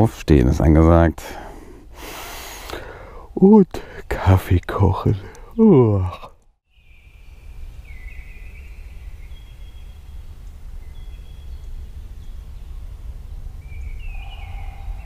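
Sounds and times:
wild birds calling: 0:05.2 - 0:15.0
steady low rumble: 0:08.7 - 0:15.0.

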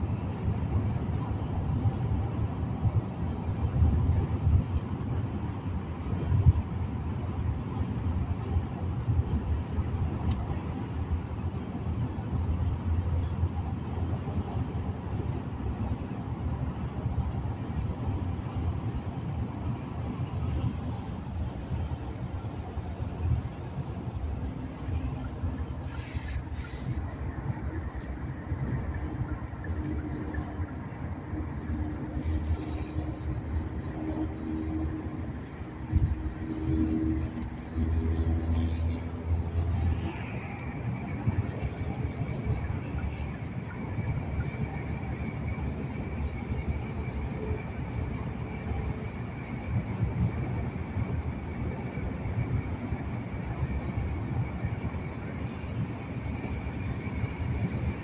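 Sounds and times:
car cabin road and engine rumble: 0:00.0 - 0:58.0
brief hisses: 0:25.8 - 0:27.1.

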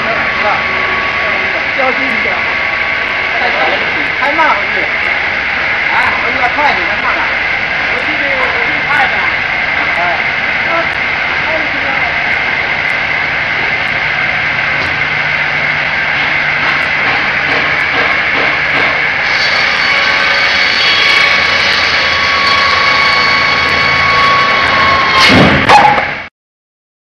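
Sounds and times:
circular saw whining: 0:00.0 - 0:26.3
short loud burst: 0:22.1 - 0:26.3.

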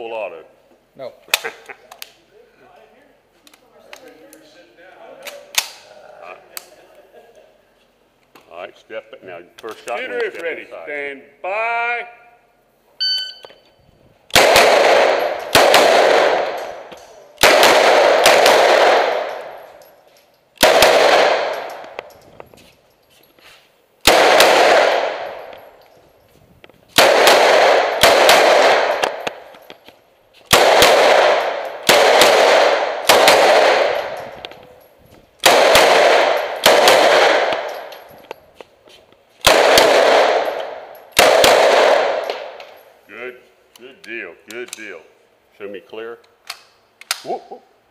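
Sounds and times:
shot timer beep: 0:13.0 - 0:13.7
submachine gun shots echoing: 0:14.3 - 0:19.6, 0:20.6 - 0:21.9, 0:24.0 - 0:25.4, 0:27.0 - 0:29.5, 0:30.5 - 0:34.3, 0:35.4 - 0:37.9, 0:39.4 - 0:42.6.

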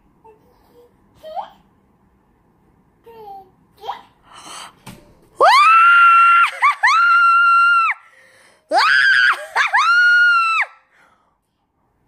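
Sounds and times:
woman screaming: 0:05.4 - 0:08.0, 0:08.7 - 0:10.8.

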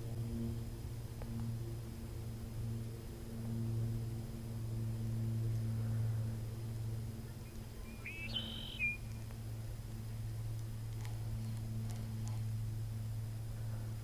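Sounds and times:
steady low hum: 0:00.0 - 0:14.0
short bird call: 0:07.8 - 0:09.0.

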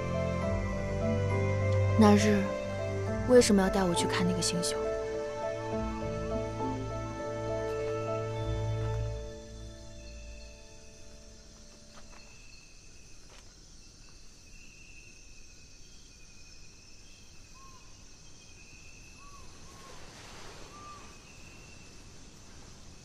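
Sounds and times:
insects chirring: 0:00.0 - 0:23.0
soft rustle: 0:19.4 - 0:23.0.

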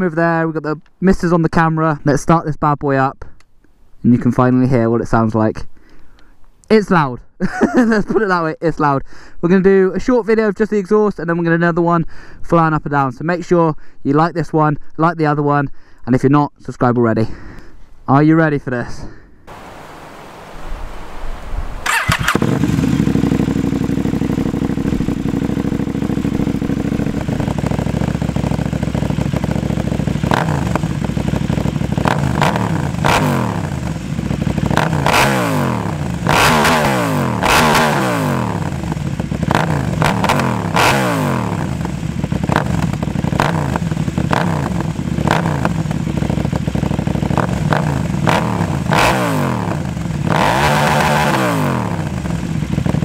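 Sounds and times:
motorcycle engine revving: 0:21.8 - 0:53.0.

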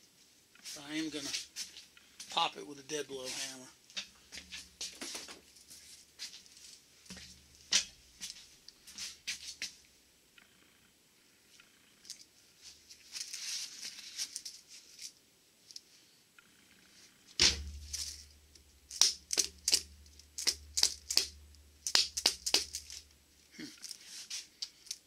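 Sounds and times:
hammer strikes on metal: 0:17.4 - 0:18.2
handling noise: 0:17.4 - 0:23.2.

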